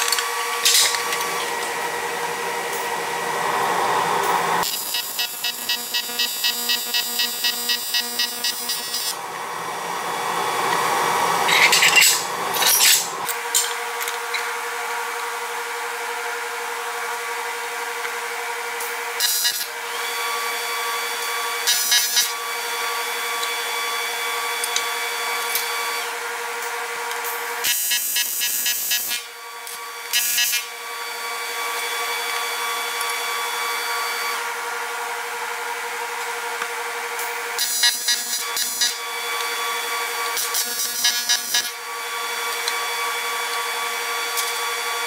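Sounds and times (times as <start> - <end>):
machine hum: 0.0 - 5.2, 8.5 - 13.3.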